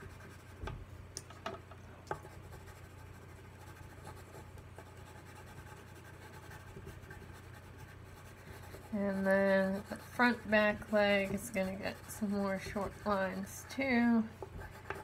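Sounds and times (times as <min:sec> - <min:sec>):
colored pencil scratching on paper: 0:00.0 - 0:00.6, 0:02.2 - 0:15.0.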